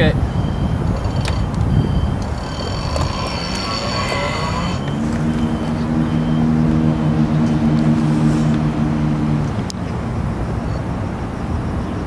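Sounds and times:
constant rushing noise: 0:00.0 - 0:12.0
electric motor humming: 0:00.8 - 0:06.8.

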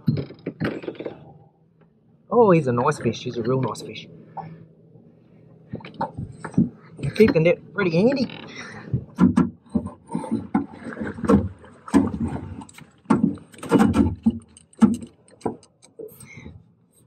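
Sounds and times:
knocks and thuds in boat: 0:00.0 - 0:01.4, 0:05.7 - 0:15.6.

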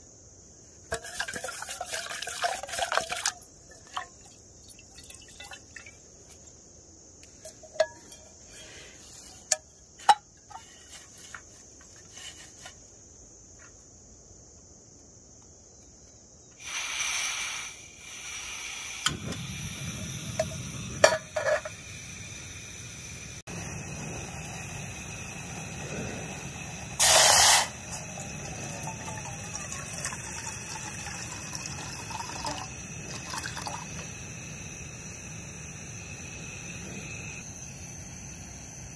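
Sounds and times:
pot clicks and knocks: 0:00.9 - 0:04.3, 0:07.4 - 0:08.3, 0:20.4 - 0:21.8
water pouring into pot: 0:00.9 - 0:06.0, 0:26.5 - 0:34.4
rush of gas: 0:16.6 - 0:21.1, 0:21.7 - 0:30.7
gas stove burner running: 0:18.7 - 0:29.5.

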